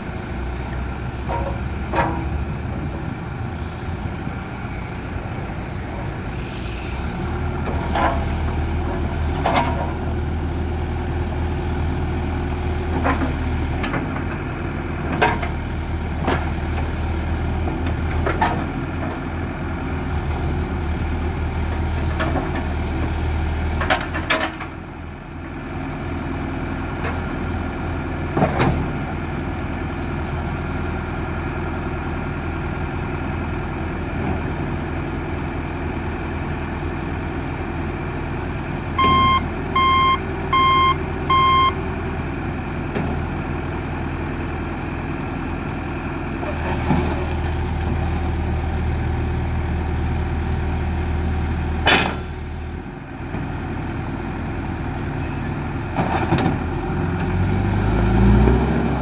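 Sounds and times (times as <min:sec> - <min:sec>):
diesel engine running: 0:00.0 - 0:59.0
backup alarm beeps: 0:39.0 - 0:41.8.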